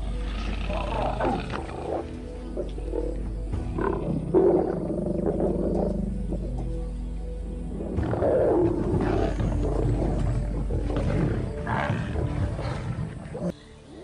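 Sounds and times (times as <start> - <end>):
background music: 0.0 - 14.0
lions growling and snarling: 0.0 - 14.0.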